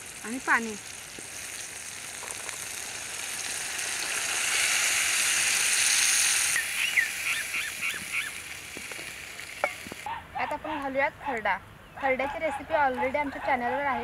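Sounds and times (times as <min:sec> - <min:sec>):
water sizzling in hot oil: 0:00.0 - 0:10.1.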